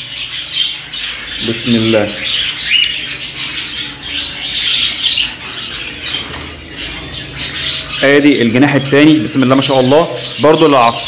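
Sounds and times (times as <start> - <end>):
wings flapping: 6.0 - 6.9.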